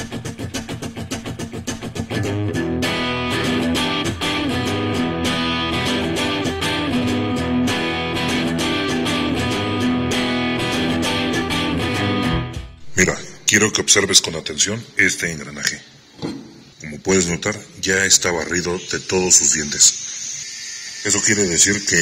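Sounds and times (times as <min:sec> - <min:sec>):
guitar music: 0:00.0 - 0:13.6.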